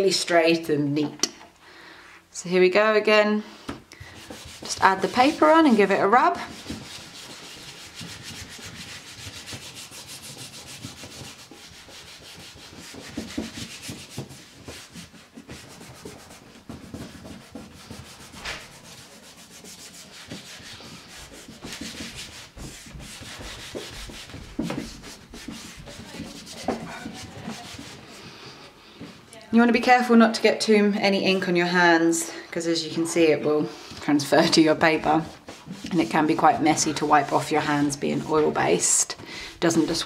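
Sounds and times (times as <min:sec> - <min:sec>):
hands rubbing paper: 0:04.0 - 0:28.3, 0:34.3 - 0:38.9.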